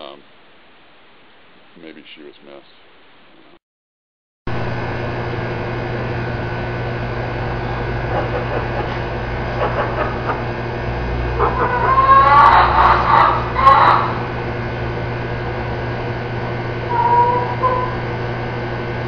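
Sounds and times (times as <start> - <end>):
machine hum with steady tones: 4.5 - 19.0
short pitched calls: 11.4 - 14.4, 16.8 - 18.2.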